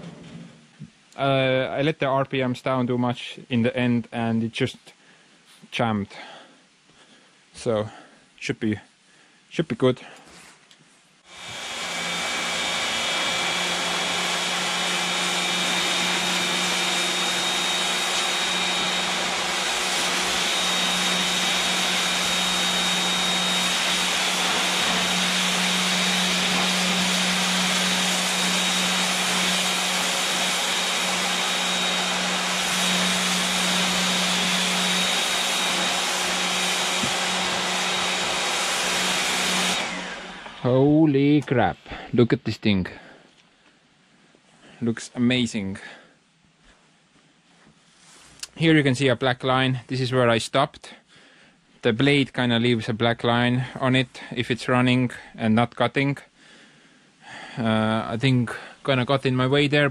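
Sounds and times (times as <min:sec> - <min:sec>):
machine humming and hissing: 0:11.3 - 0:41.0.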